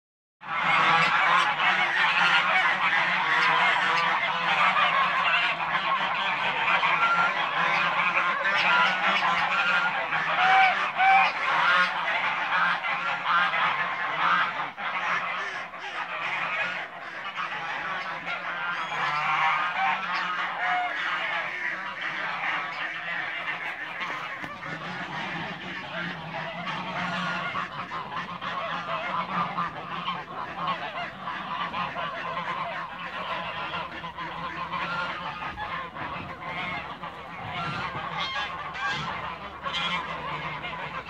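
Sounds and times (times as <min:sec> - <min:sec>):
geese honking: 0:00.4 - 0:41.0.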